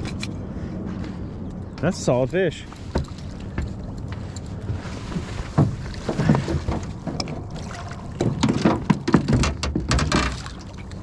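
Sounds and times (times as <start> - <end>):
knocks and thumps on boat: 2.7 - 11.0.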